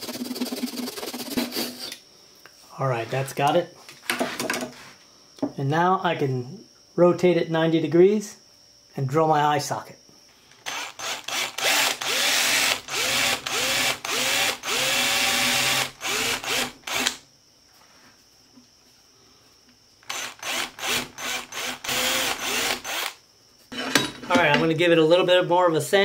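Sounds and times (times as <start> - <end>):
power drill bursts: 10.6 - 17.2, 20.0 - 23.2.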